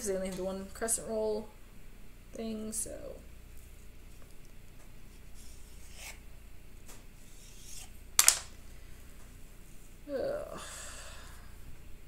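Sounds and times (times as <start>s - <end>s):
knife scraping through dough: 5.2s - 6.2s, 7.2s - 8.0s.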